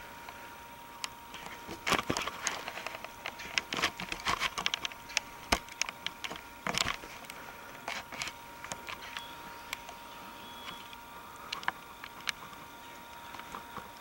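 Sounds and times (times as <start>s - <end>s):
camera handling clicks and rustles: 1.4s - 9.9s
faint steady high tone: 9.0s - 11.6s.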